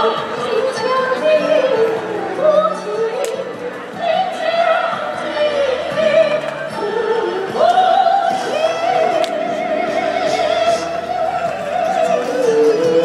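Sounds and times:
accompanying music: 0.0s - 13.0s
opera singer high voice: 0.0s - 13.0s.

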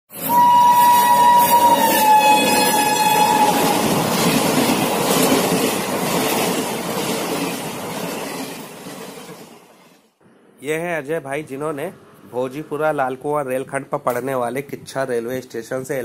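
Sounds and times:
train horn: 0.1s - 4.1s
train coaches rushing by: 0.1s - 10.1s.

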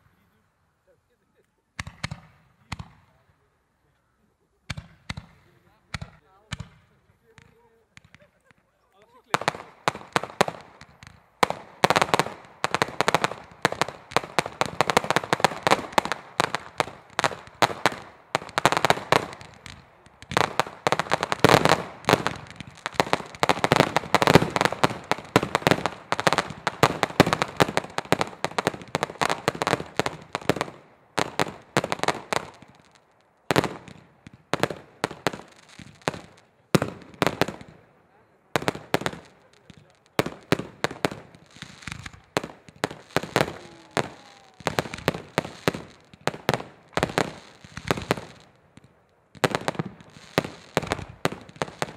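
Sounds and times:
fireworks launches and bursts: 1.7s - 3.5s, 4.6s - 51.9s.

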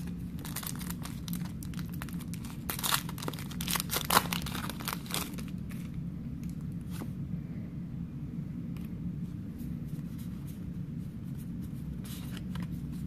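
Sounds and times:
plastic wrapper tearing and crinkling: 0.0s - 5.9s.

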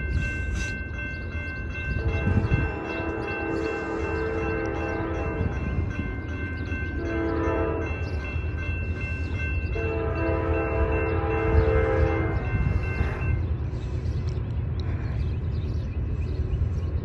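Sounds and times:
crossing warning bell ringing: 0.0s - 14.0s
locomotive air horn blasts: 1.9s - 5.6s, 7.0s - 8.0s, 9.7s - 12.6s.

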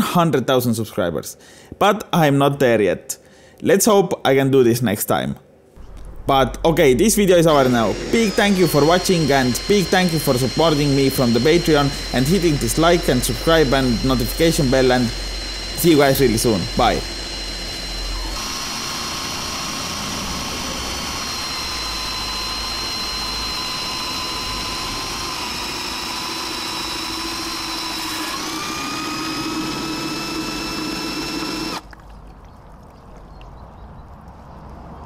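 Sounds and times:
electric drill motor whine: 7.4s - 31.8s.

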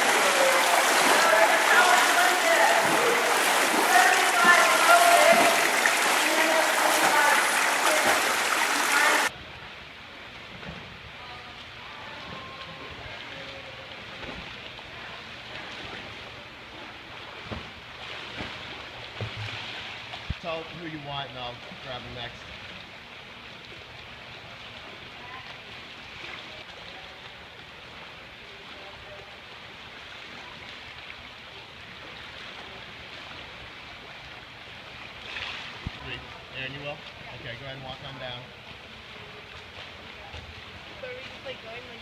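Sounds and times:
swimmers splashing in pool: 0.0s - 9.4s.

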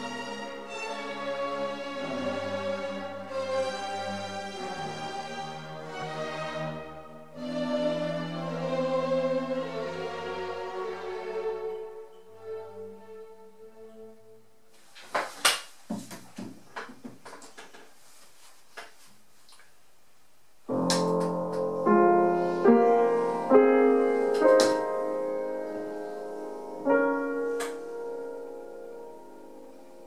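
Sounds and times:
piano playing slow chords: 20.7s - 30.0s.

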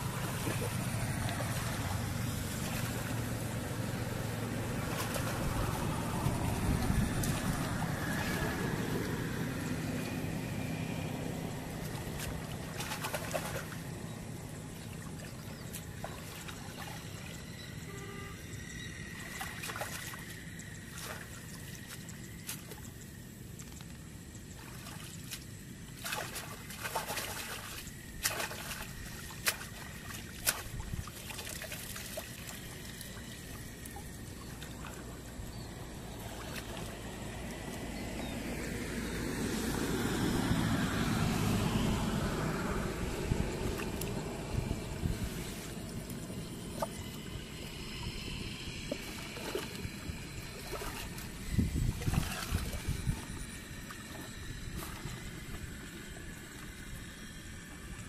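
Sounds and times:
small sharp splashes: 0.0s - 9.3s, 11.7s - 14.1s, 14.7s - 18.5s, 19.1s - 38.4s, 43.1s - 44.4s, 48.5s - 58.0s
muddy water sloshing: 0.0s - 58.0s.

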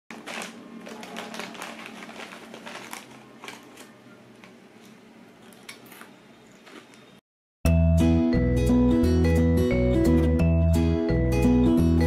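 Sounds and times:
chip bag crinkling: 0.1s - 7.0s.

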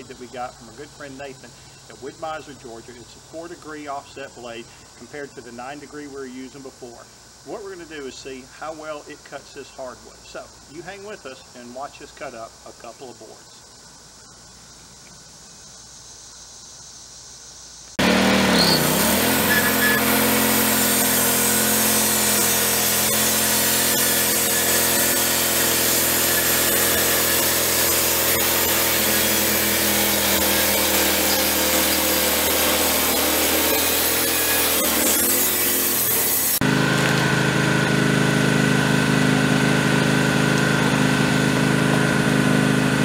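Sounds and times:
sawmill blade cutting log: 18.0s - 43.0s
sawmill engine running: 18.0s - 43.0s.

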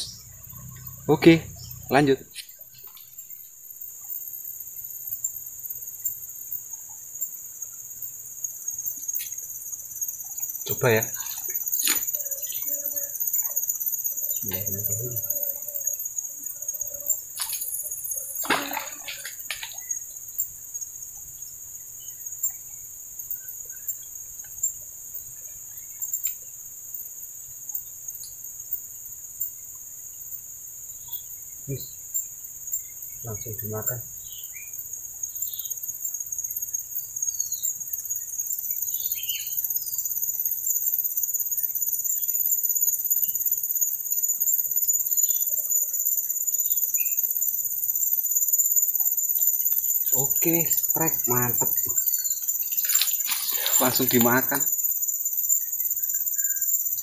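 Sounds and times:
faint chirps: 0.0s - 26.5s, 29.4s - 42.6s, 48.2s - 57.0s
high-pitched insect chorus: 0.0s - 57.0s.

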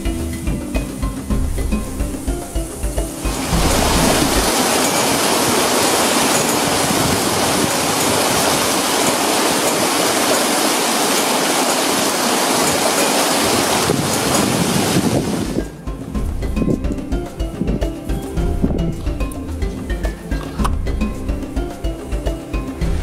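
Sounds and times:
waterfall splashing into pool: 2.9s - 15.6s.

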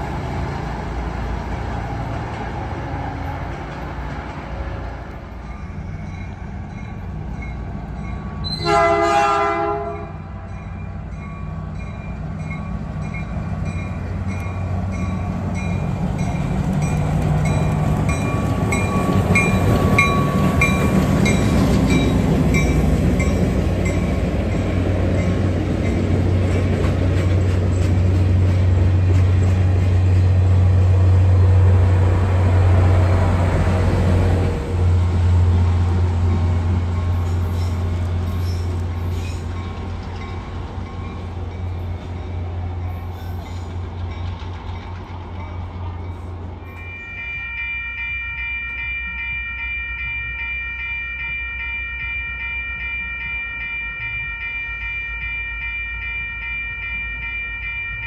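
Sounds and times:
train passing close by: 0.0s - 58.0s
train horn blast: 8.5s - 10.4s
bell dinging: 46.6s - 58.0s.

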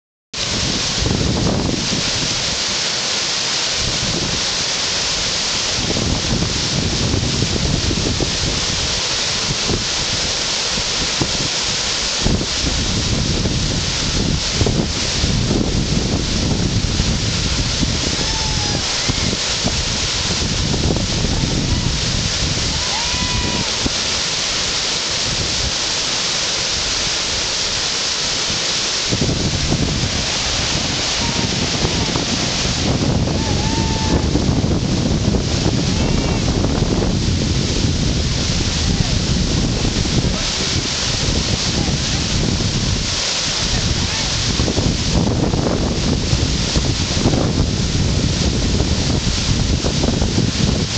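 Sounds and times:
whitewater rapids rushing: 0.4s - 50.9s
low buffeting rumble: 12.3s - 26.1s, 26.7s - 50.9s.

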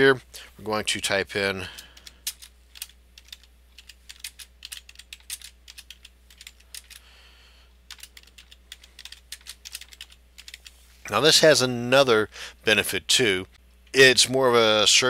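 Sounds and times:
computer keyboard typing: 1.8s - 7.0s, 7.9s - 10.8s.

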